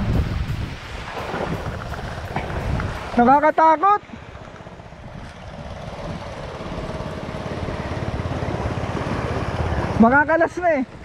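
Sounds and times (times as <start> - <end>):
small engine running: 4.6 - 10.3.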